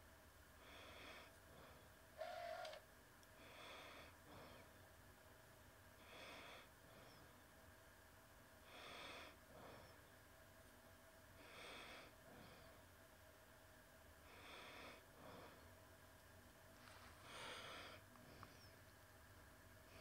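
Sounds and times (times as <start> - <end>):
person breathing: 0.6 - 2.7, 3.4 - 4.8, 6.0 - 7.4, 8.6 - 10.2, 11.4 - 13.0, 14.2 - 15.8, 16.8 - 18.8.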